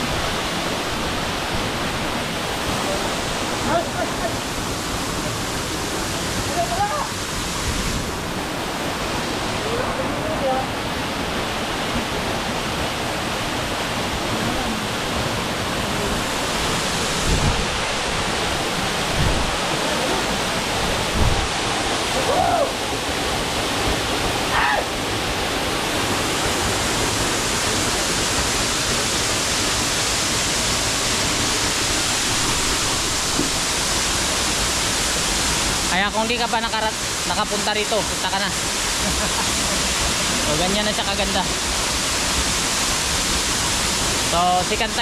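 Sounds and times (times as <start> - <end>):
waterfall pouring onto rocks: 26.0 - 45.0.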